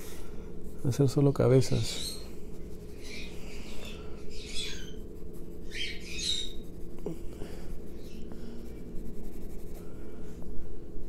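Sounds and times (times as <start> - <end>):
steady low hum: 0.0 - 11.0
pencil scratching on paper: 2.5 - 3.4, 4.4 - 9.9.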